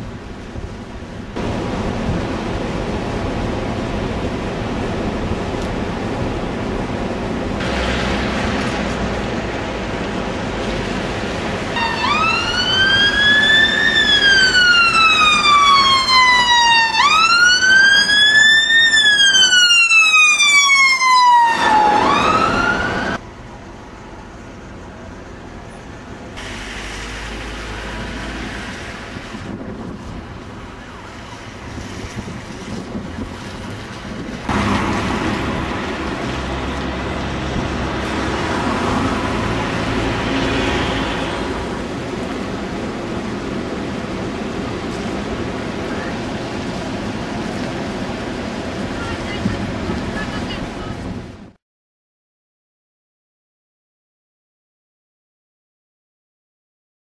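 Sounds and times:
outdoor background noise: 0:00.0 - 0:51.6
emergency siren wailing: 0:11.7 - 0:23.2.

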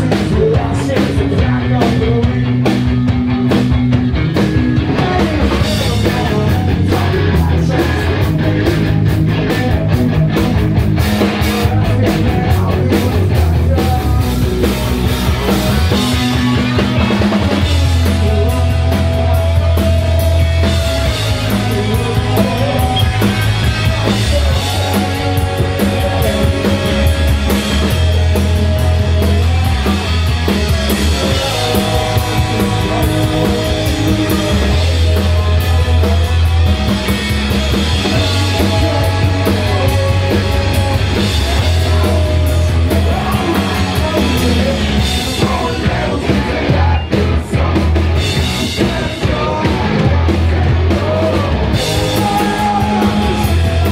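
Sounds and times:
loud bass line: 0:00.0 - 0:53.9
punk rock band playing: 0:00.0 - 0:53.9.

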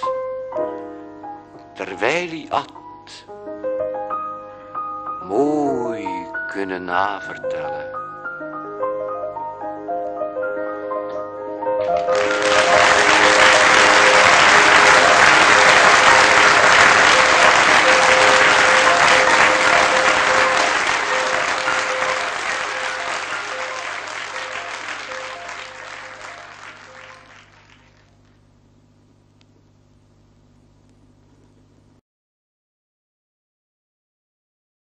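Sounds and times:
faint music: 0:00.0 - 0:03.3, 0:05.2 - 0:08.5, 0:09.3 - 0:28.1
audience applauding: 0:11.8 - 0:28.4.

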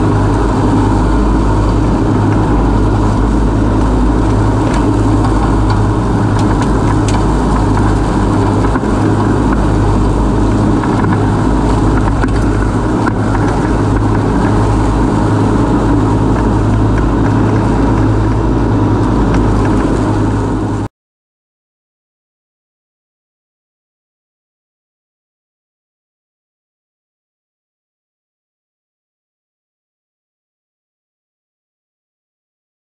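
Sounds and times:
mower engine running: 0:00.0 - 0:20.9.

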